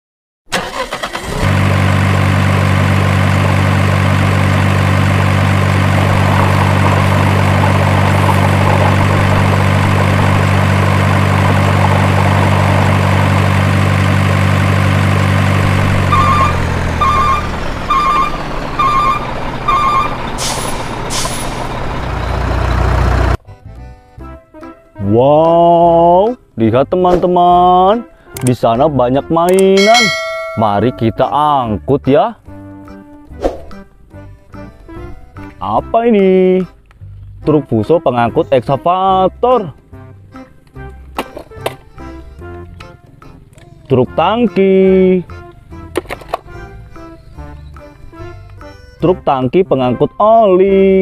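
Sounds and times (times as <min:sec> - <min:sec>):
truck engine running: 0:00.5 - 0:23.4, 0:29.8 - 0:31.6
reversing alarm beeping: 0:16.0 - 0:20.7
air brake hisses: 0:20.4 - 0:21.7.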